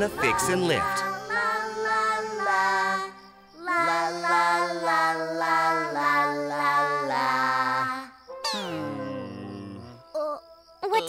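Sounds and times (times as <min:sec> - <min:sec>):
light musical backing: 0:00.0 - 0:03.6
cartoon voices singing: 0:00.0 - 0:10.2.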